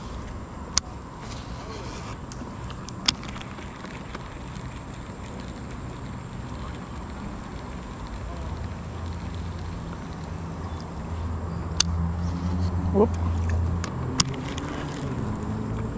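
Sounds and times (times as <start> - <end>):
low steady hum: 0.0 - 15.9
fishing reel click: 2.7 - 11.0, 14.2 - 15.8.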